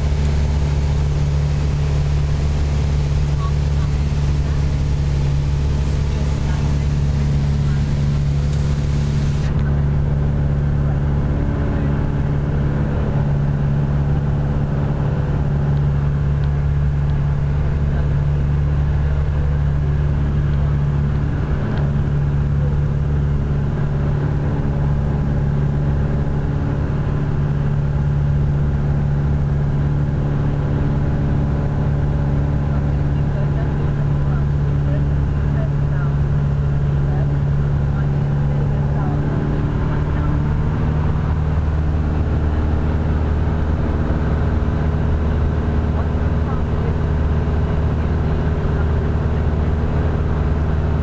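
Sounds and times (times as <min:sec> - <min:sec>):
light aircraft engine droning: 0:00.0 - 0:51.0.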